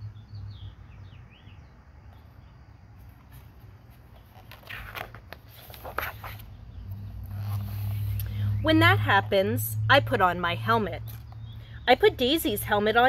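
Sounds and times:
book page rustling: 3.0s - 6.6s.

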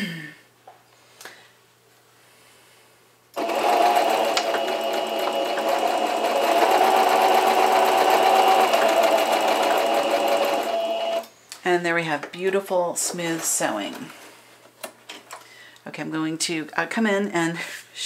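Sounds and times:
sewing machine running: 3.4s - 11.3s.

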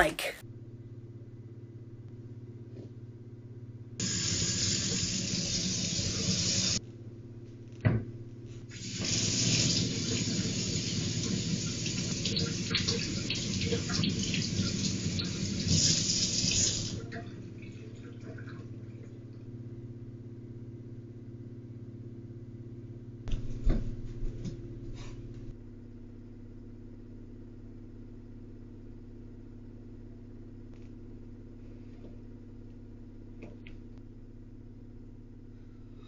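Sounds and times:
low electrical hum: 0.0s - 36.0s
kitchen faucet running: 4.0s - 6.8s, 8.7s - 18.6s.

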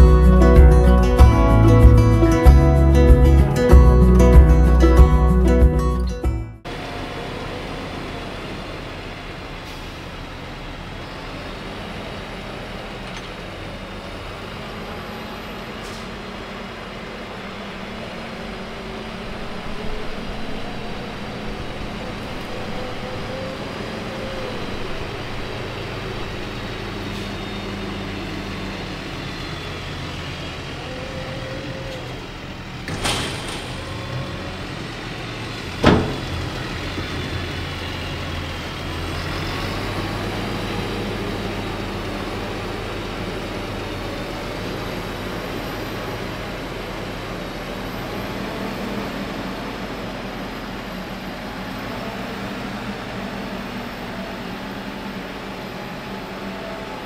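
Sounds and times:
tractor diesel engine running: 0.0s - 57.0s
sharp knocks: 35.8s - 36.4s.

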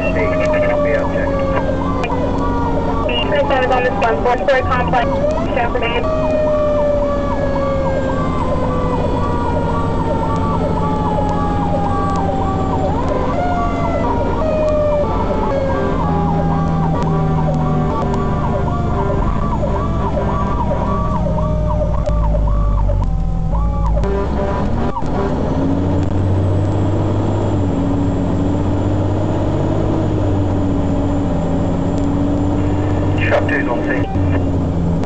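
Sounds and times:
lower siren tone falling in pitch: 0.0s - 25.3s
fast cycling fire engine siren: 0.0s - 35.0s
truck engine rumble: 0.0s - 35.0s.

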